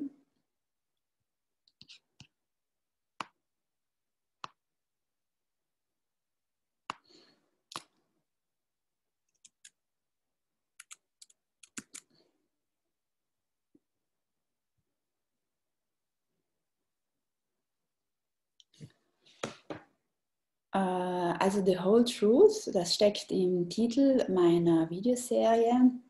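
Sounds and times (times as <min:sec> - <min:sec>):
computer mouse clicks: 0:09.3 - 0:09.8, 0:10.8 - 0:12.1.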